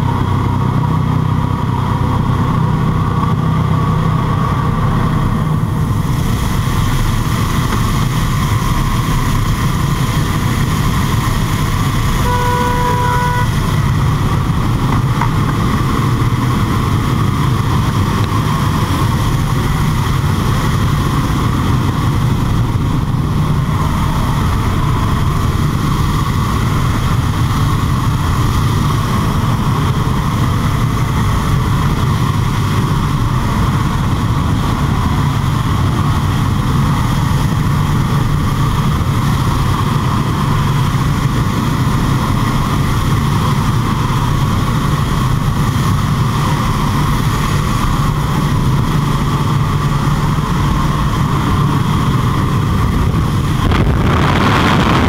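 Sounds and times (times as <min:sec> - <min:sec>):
propeller aircraft engine drone: 0:00.0 - 0:55.0
wind rushing: 0:51.6 - 0:55.0.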